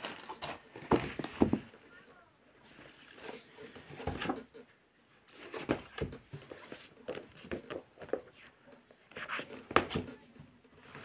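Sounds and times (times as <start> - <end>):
book covers rustling: 0.0 - 11.0
dull knocks of books: 0.3 - 1.8, 5.4 - 8.2, 9.5 - 10.2.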